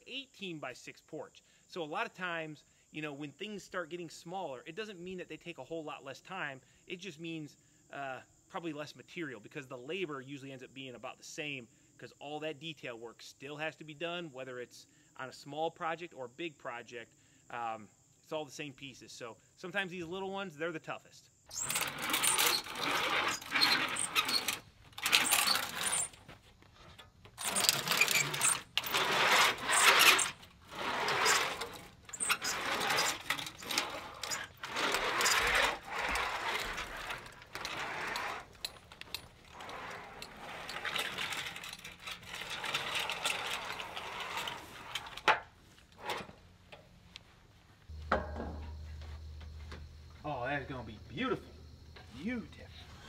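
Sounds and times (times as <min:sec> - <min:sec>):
metal scraping and rattling: 0:21.5 - 0:46.4
steady low hum: 0:47.1 - 0:53.0.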